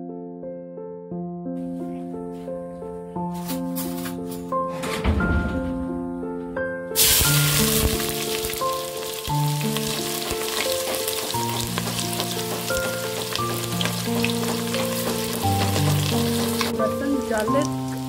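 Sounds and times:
background music: 0.0 - 18.0
onions sizzling in hot oil: 7.0 - 18.0.

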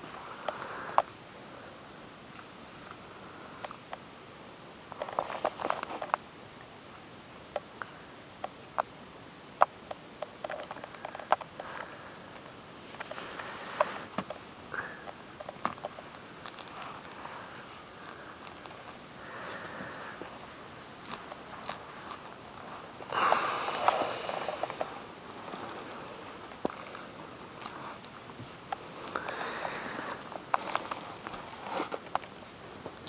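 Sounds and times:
peel rustling: 15.0 - 33.0.

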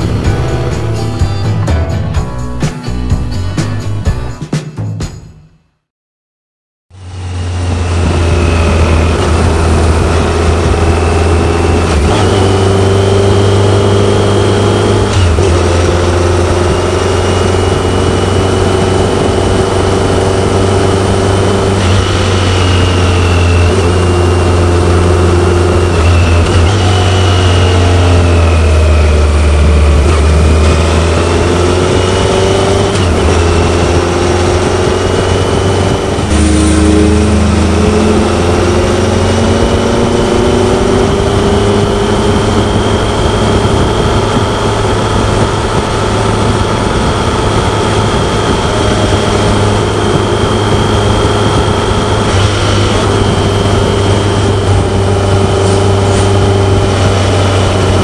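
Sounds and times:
wind rushing: 0.0 - 2.4, 29.6 - 58.0
motorcycle engine running: 0.0 - 3.4, 6.9 - 58.0.

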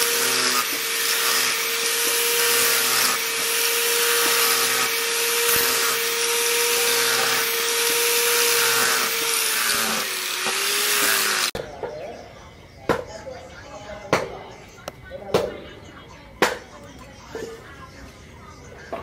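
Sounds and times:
angle grinder grinding steel: 0.0 - 11.6.

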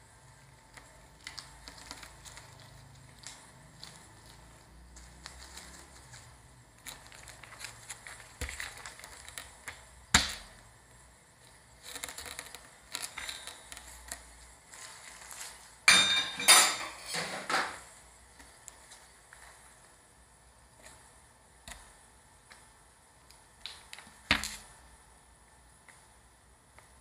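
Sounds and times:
plastic crackling: 0.4 - 15.9, 22.5 - 24.8
metal spatula scraping plastic film: 11.7 - 15.9.

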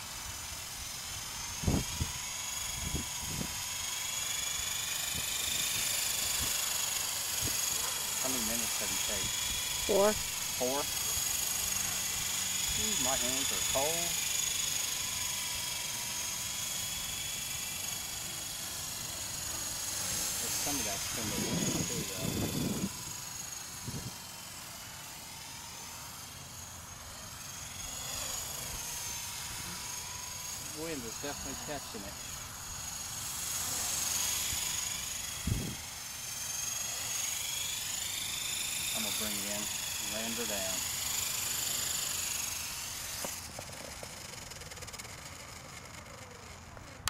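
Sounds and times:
rc helicopter motor whine: 0.0 - 47.0
rotor ticking spinning down: 0.1 - 47.0.

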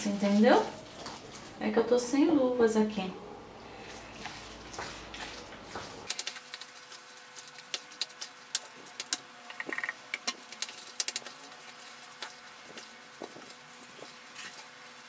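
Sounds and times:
wooden spoon mashing food in pot: 4.2 - 15.0.

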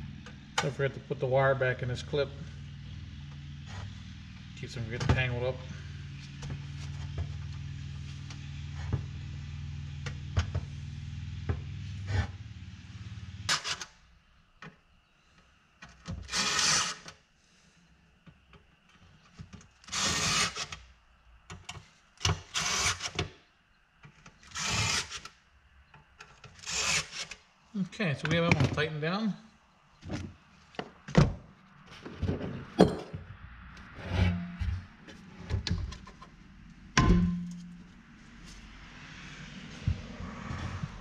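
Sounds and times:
steady low hum: 0.0 - 15.7, 27.7 - 41.0
parts being handled: 31.8 - 38.7.

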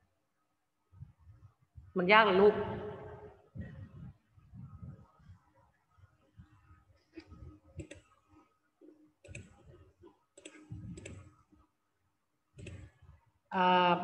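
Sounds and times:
low microphone hum: 0.8 - 8.5, 9.3 - 11.6.

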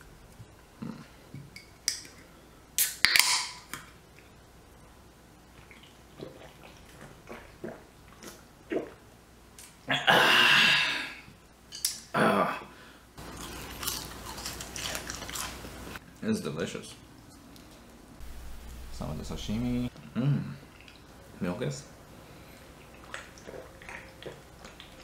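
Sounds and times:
sipping and swallowing: 5.5 - 9.1, 22.6 - 25.0.

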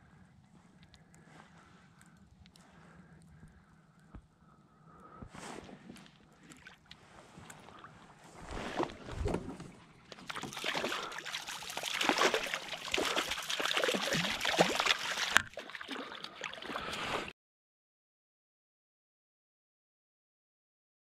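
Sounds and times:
fish thrashing and splashing: 7.5 - 17.3.

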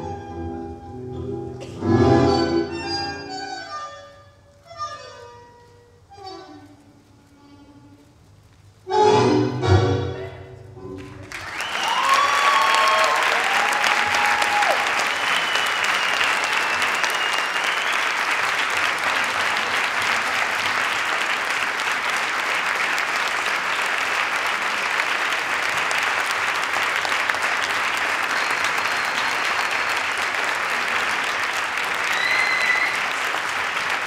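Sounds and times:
large audience applauding: 11.0 - 34.0.

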